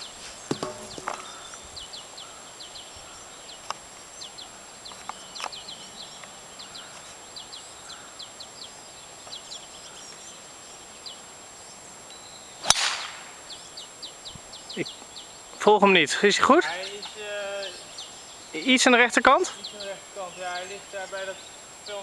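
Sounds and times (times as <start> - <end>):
birds chirping: 0.0 - 22.0
golf club striking ball: 0.5 - 1.2, 12.6 - 13.2.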